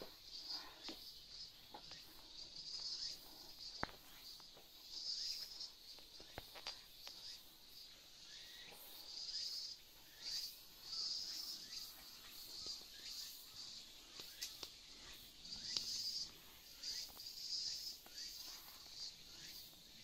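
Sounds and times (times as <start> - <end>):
cicadas buzzing: 0.0 - 20.0.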